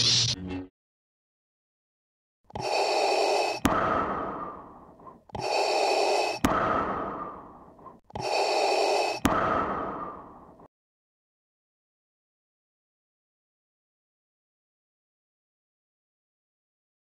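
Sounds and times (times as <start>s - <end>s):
mechanical respirator breathing: 2.5s - 10.6s.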